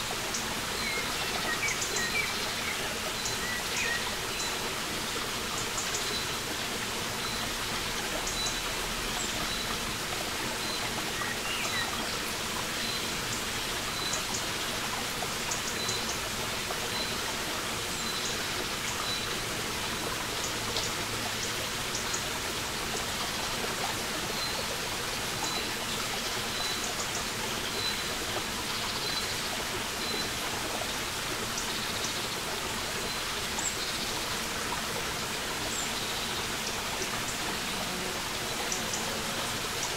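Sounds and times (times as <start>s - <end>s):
brook trickling over rocks: 0.0s - 39.9s.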